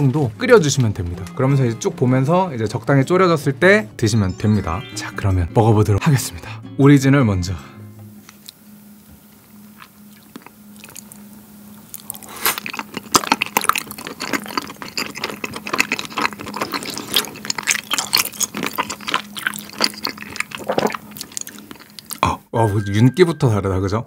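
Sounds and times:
wet squishy chewing: 0:09.6 - 0:22.2.

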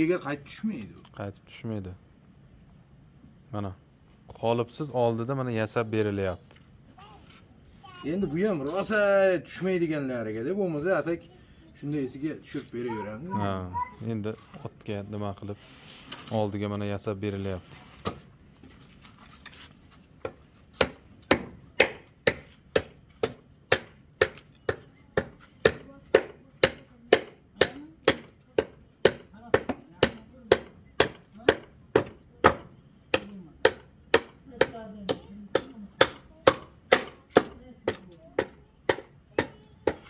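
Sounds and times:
hand tool striking wood: 0:20.2 - 0:40.0.

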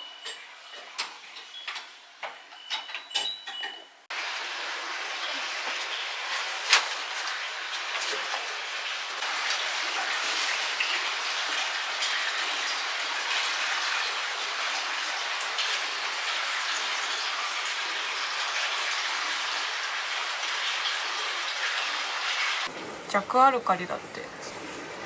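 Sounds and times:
flowing water rushing: 0:04.1 - 0:22.7.

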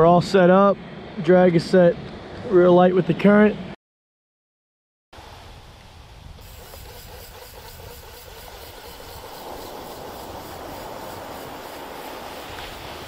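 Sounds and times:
wind: 0:00.0 - 0:03.8, 0:05.2 - 0:13.0
fishing reel ticking: 0:06.4 - 0:12.4.

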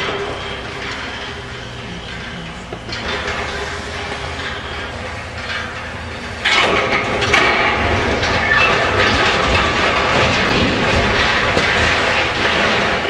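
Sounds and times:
falling metal debris crashing: 0:00.0 - 0:13.0
metallic squeals: 0:07.8 - 0:09.7.

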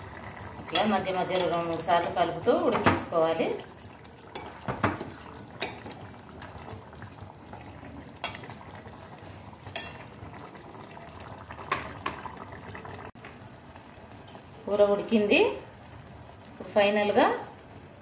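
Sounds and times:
curry bubbling: 0:00.0 - 0:18.0
spoon clinking on pot: 0:08.2 - 0:08.5, 0:09.7 - 0:10.1.

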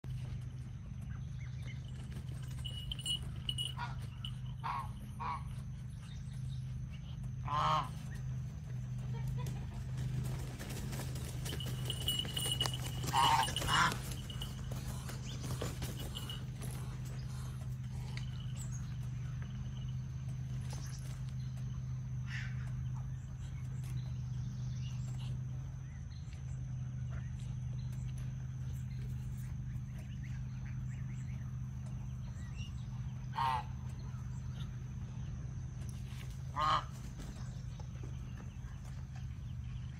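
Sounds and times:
steady low hum: 0:00.0 - 0:39.9
honking animal calls: 0:02.6 - 0:06.0, 0:07.1 - 0:23.4, 0:30.2 - 0:35.0, 0:36.0 - 0:38.8.

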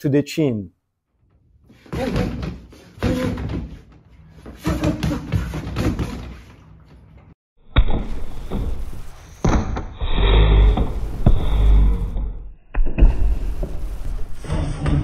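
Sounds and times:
fists punching rubber dummy: 0:01.8 - 0:03.9.

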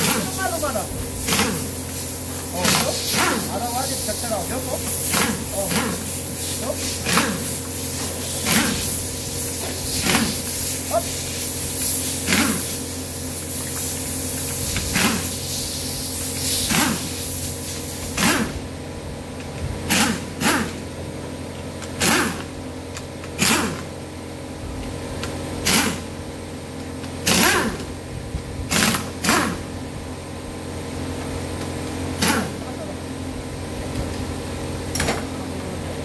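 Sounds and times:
air hissing: 0:00.0 - 0:18.6
air wrench bursts: 0:00.0 - 0:18.6, 0:19.9 - 0:20.8, 0:22.0 - 0:22.5, 0:23.4 - 0:23.9, 0:25.6 - 0:26.1, 0:27.2 - 0:27.9, 0:28.7 - 0:29.7.

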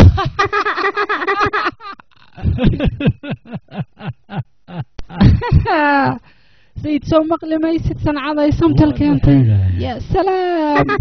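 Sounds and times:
person laughing: 0:00.0 - 0:05.9, 0:08.6 - 0:09.8, 0:10.7 - 0:11.0.

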